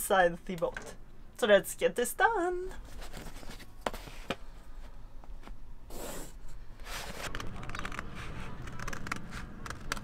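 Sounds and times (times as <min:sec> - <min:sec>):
cardboard and paper scraping: 0:05.9 - 0:10.0.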